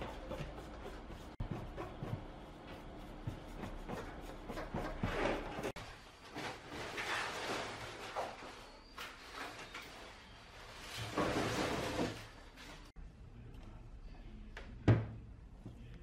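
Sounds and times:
paintbrush swishing on panel: 0.0 - 5.7.

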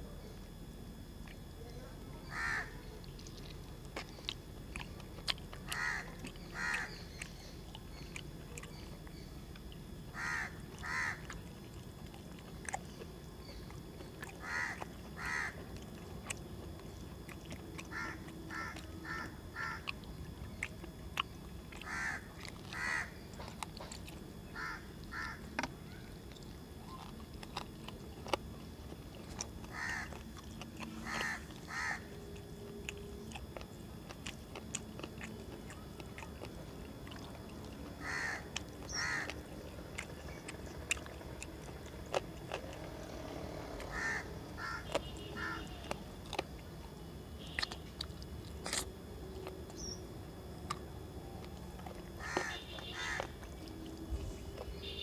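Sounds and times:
crows cawing: 2.3 - 2.9, 5.6 - 7.0, 10.1 - 11.3, 14.4 - 15.7, 17.9 - 20.0, 21.8 - 23.2, 24.5 - 25.5, 29.7 - 30.2, 31.0 - 32.2, 38.0 - 39.4, 43.8 - 45.8, 52.2 - 53.4
chewing clicks: 2.9 - 55.0.

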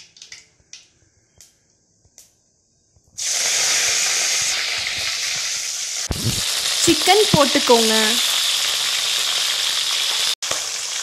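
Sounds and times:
loud steady sizzle: 3.2 - 11.0.

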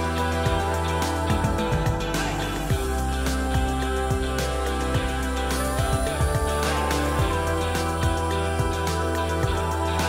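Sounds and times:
music with bass and beat: 0.0 - 10.0.

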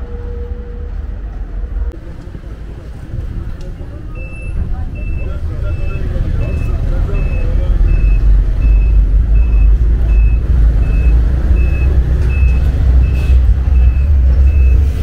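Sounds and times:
tram rumbling along track: 0.0 - 15.0
short electronic beeps: 4.1 - 14.8.

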